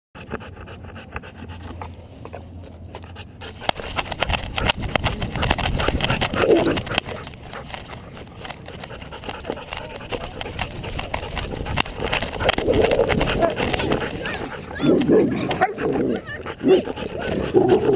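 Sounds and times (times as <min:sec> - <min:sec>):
dog vocal sound: 0:00.2 - 0:17.9
thuds and rattles of harness camera: 0:03.5 - 0:14.4.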